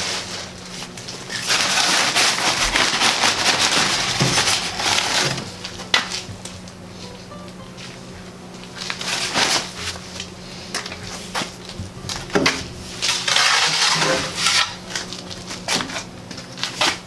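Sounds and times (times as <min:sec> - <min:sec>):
shovel scraping and knocking: 0:12.4 - 0:15.0.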